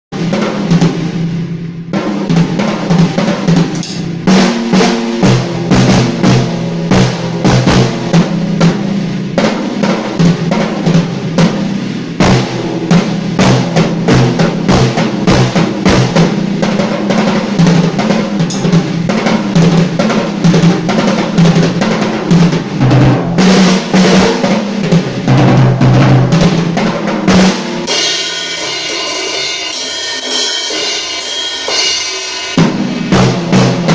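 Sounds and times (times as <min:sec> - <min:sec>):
fast drum kit playing: 0:00.1 - 0:33.9
cymbal ringing: 0:02.4 - 0:05.7, 0:18.4 - 0:19.0, 0:27.5 - 0:33.9.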